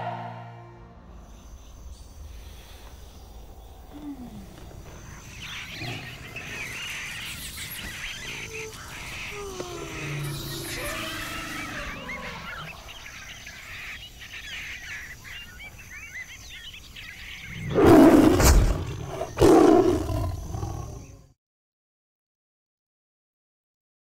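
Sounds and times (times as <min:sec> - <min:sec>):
birds chirping and calling: 0:01.2 - 0:21.2
tiger roaring loud and deep: 0:05.4 - 0:07.2, 0:08.2 - 0:13.0, 0:17.5 - 0:21.2.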